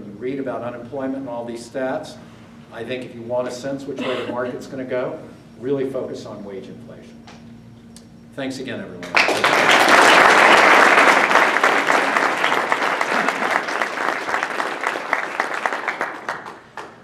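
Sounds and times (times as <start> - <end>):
audience applause: 9.1 - 17.0.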